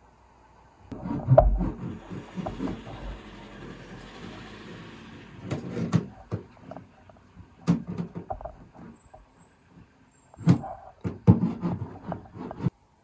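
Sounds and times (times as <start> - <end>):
hand roller knocking on metal panel: 1.0 - 4.5, 7.4 - 9.0.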